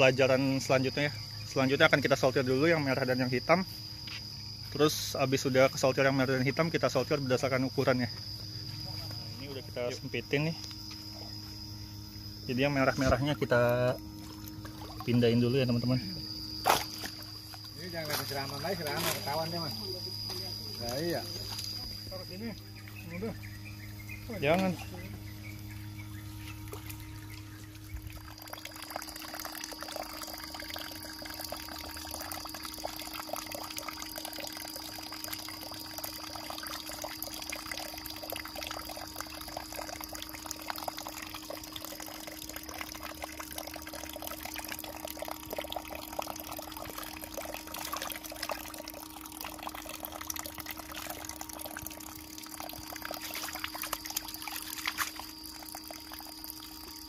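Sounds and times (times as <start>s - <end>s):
steady low hum: 0.0s - 57.0s
water splashing and pouring: 14.6s - 15.3s, 26.7s - 57.0s.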